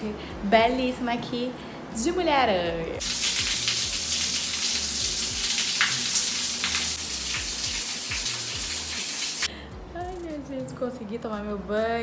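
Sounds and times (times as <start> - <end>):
shower water spraying: 3.0 - 9.5.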